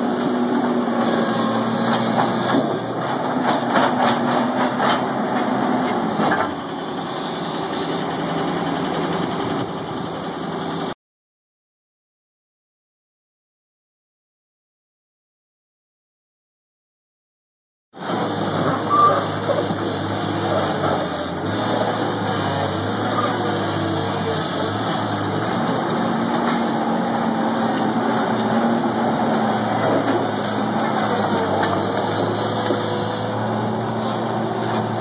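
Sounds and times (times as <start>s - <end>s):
loader engine running: 0.0s - 11.0s, 18.0s - 35.0s.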